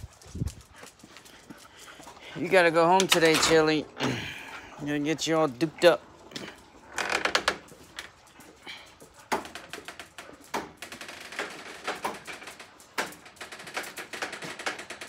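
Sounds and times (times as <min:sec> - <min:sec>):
footsteps on concrete: 0:00.0 - 0:02.9.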